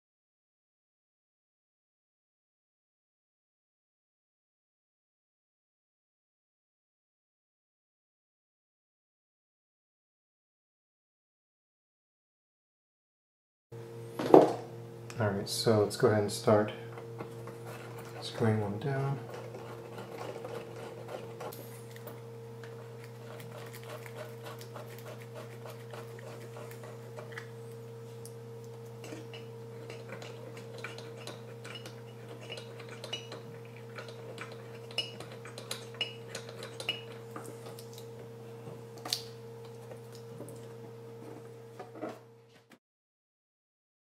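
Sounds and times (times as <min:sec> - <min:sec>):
low electrical hum: 0:13.8 - 0:42.8.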